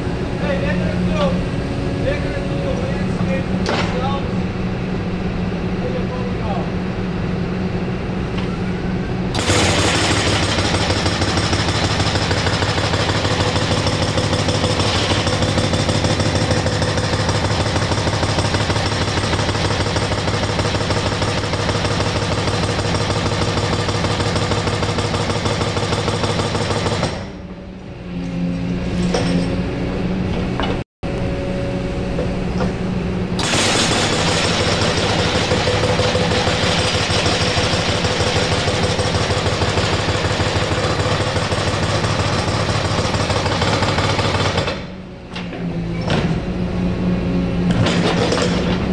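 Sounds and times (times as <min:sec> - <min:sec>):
excavator engine humming: 0:00.0 - 0:20.6, 0:27.3 - 0:33.5
hydraulic breaker hammering: 0:09.3 - 0:27.5, 0:33.4 - 0:46.5, 0:47.7 - 0:48.9.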